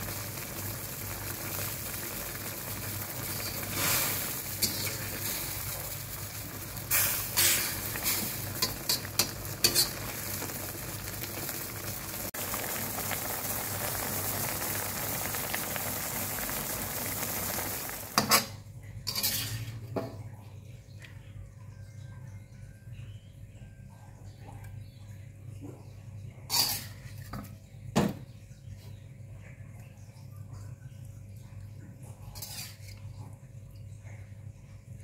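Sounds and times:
stir-fry sizzling in a wok: 0:00.0 - 0:19.9
metal spoon scraping a wok: 0:03.4 - 0:05.5, 0:09.6 - 0:10.1, 0:18.2 - 0:19.8, 0:26.5 - 0:27.3, 0:32.4 - 0:33.0.

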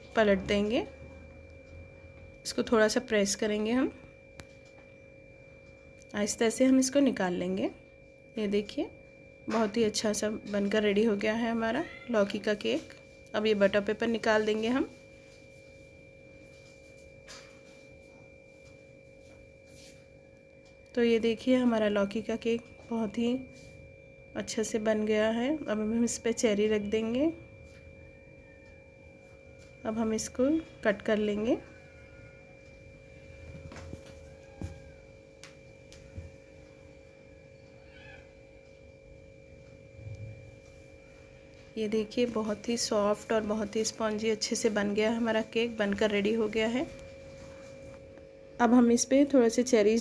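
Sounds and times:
faint steady hum: 0:00.0 - 0:50.0
faint high squeak: 0:34.2 - 0:35.1, 0:37.6 - 0:38.4.

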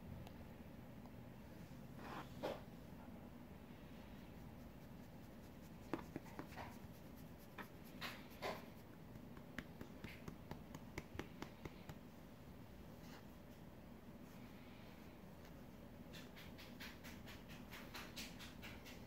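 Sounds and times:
hand stroking cat fur: 0:04.1 - 0:12.1.

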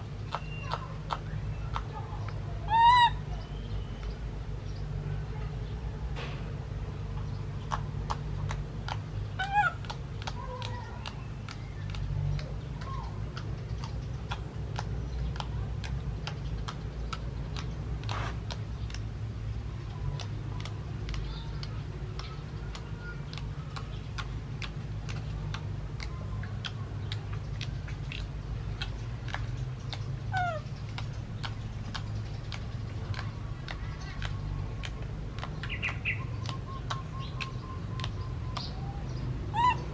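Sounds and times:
steady low hum: 0:00.0 - 0:39.9
baby monkey crying: 0:02.7 - 0:03.3, 0:09.4 - 0:10.8, 0:39.5 - 0:39.9
faint clicks: 0:07.1 - 0:39.3.

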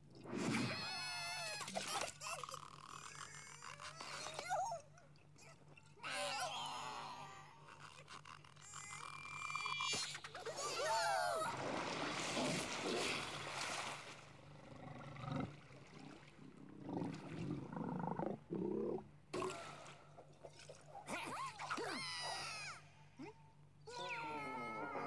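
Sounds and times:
cartoon growls: 0:23.9 - 0:25.0.

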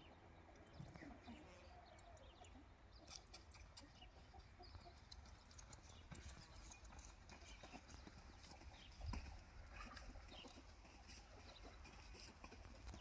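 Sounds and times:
chickens clucking: 0:00.5 - 0:13.0.

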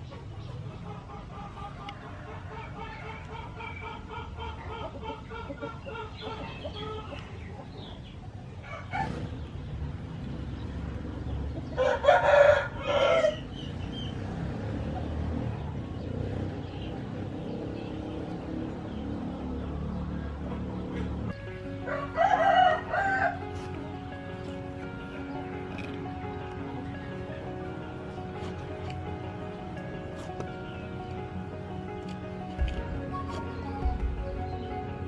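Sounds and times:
chickens clucking: 0:00.0 - 0:10.4, 0:20.4 - 0:35.0
rooster crowing: 0:11.8 - 0:13.4, 0:21.8 - 0:23.5.

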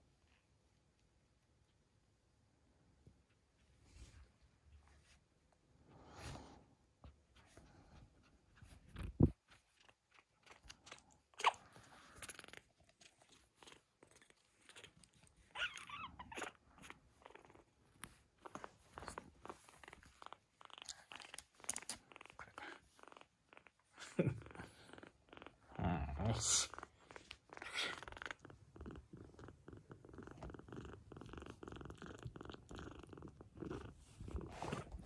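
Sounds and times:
kitten squeaks: 0:14.6 - 0:17.6.

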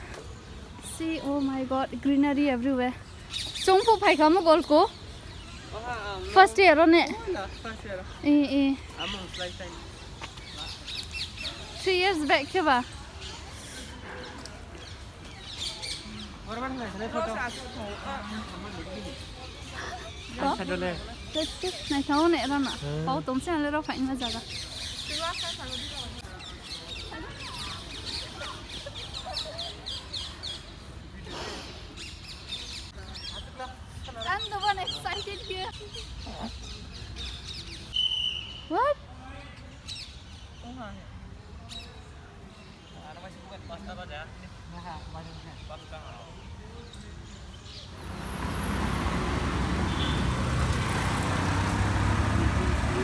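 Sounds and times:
birds chirping: 0:00.0 - 0:53.0
road traffic engine rumble: 0:47.7 - 0:53.0.

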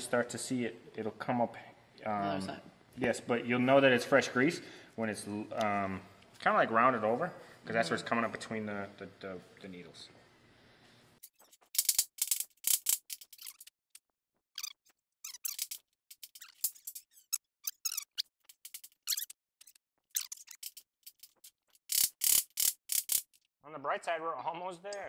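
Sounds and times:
small parts and tools clicking: 0:11.2 - 0:14.0, 0:14.6 - 0:23.5.

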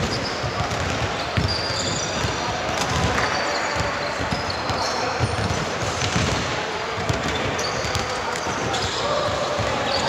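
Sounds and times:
shoe squeaks: 0:00.0 - 0:02.3, 0:03.1 - 0:05.6, 0:07.2 - 0:09.1, 0:09.7 - 0:10.0
basketball bouncing on court: 0:00.0 - 0:10.0.

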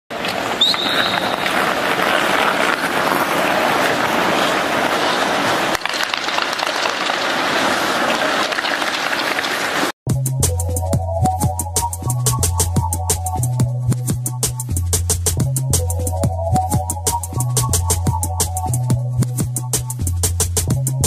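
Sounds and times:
many hands clapping: 0:05.7 - 0:10.0.

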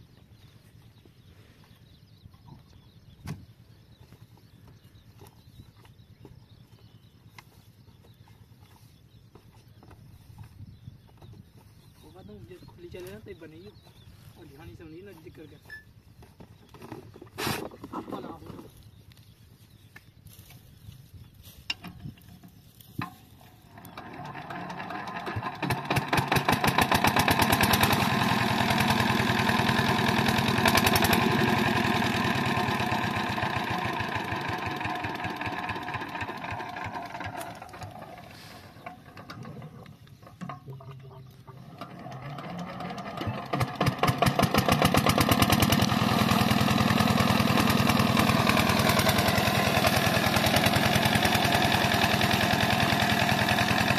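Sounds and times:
diesel engine running: 0:23.4 - 0:53.9.

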